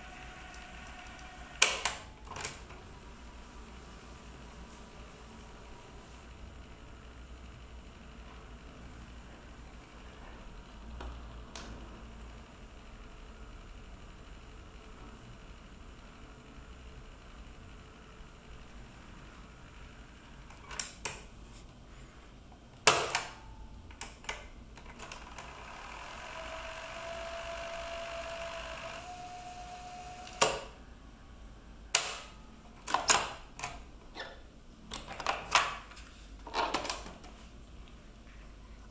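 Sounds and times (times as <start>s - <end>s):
cassette motor whirring: 0.0s - 3.8s, 6.2s - 21.4s, 22.8s - 30.8s.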